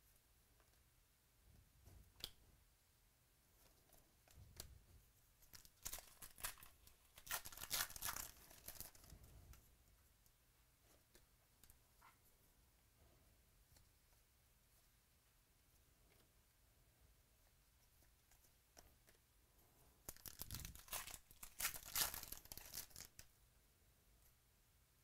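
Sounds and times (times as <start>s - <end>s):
plastic packaging rustling: 5.5s - 9.2s, 20.1s - 23.2s.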